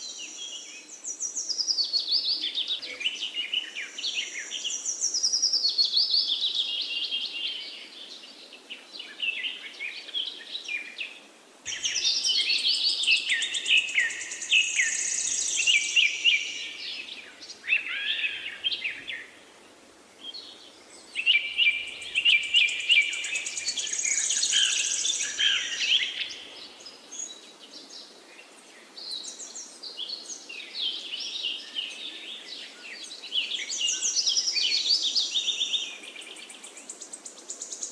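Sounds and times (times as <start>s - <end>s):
songbirds chirping and twittering: 0.0s - 37.9s.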